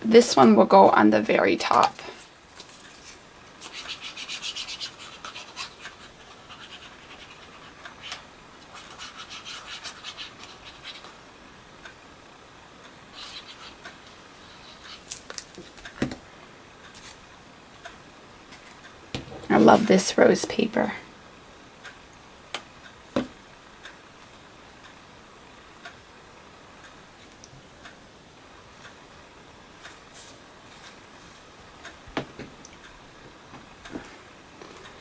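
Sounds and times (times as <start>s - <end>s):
paper rustling and rubbing: 2.6s - 11.1s.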